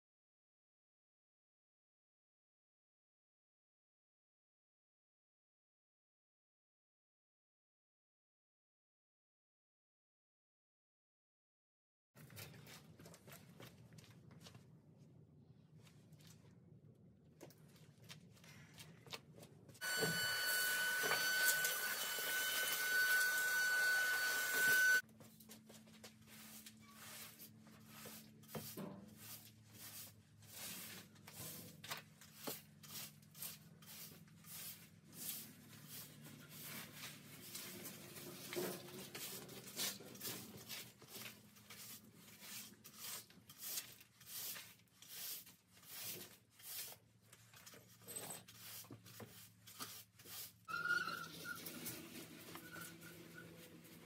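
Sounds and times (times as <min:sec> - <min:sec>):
broom sweeping concrete floor: 0:19.8 - 0:54.0.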